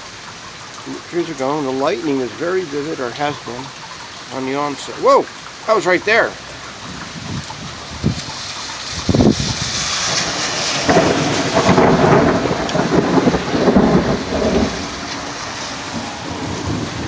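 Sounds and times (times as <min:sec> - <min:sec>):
wind-driven rain hissing: 0:00.0 - 0:17.0
thunder crack and rumble: 0:06.8 - 0:17.0.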